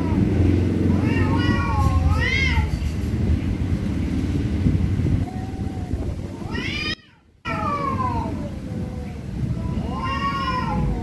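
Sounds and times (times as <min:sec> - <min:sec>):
cats yowling: 0:00.0 - 0:02.9, 0:05.2 - 0:11.0
low rumble: 0:00.0 - 0:06.6.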